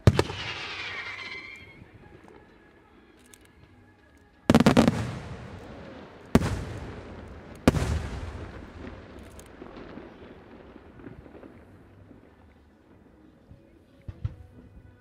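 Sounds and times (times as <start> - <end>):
firework shells bursting with echo: 0.0 - 2.4, 4.5 - 12.5.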